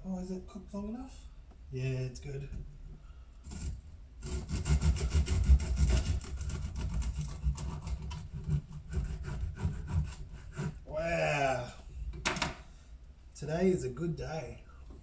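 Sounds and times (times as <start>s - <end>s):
bread knife sawing through loaf: 3.5s - 10.9s.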